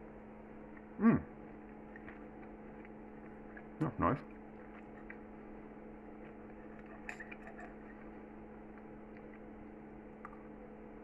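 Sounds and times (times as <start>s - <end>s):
low electrical hum: 0.0s - 11.0s
knife and fork clinking on plate: 6.8s - 8.0s.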